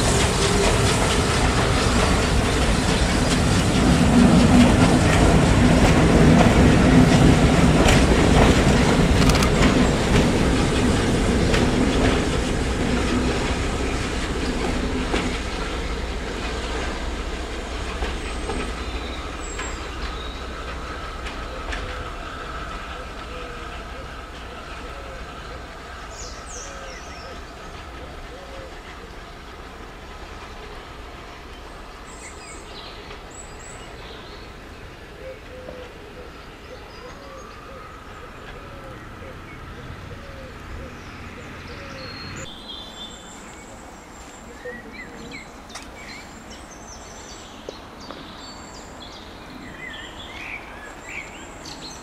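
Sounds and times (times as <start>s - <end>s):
train wheels clicking over rail joints: 0.0s - 36.1s.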